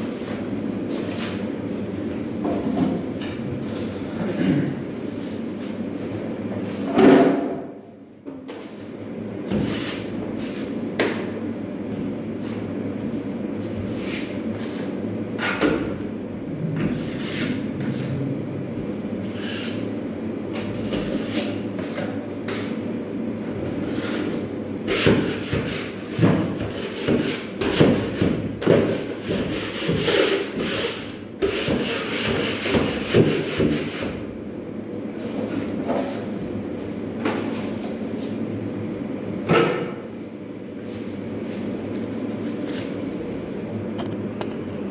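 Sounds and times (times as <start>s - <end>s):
steady hum: 0.0s - 44.9s
tool scraping drywall: 16.8s - 18.1s, 19.2s - 19.8s, 20.8s - 22.8s, 23.8s - 34.2s.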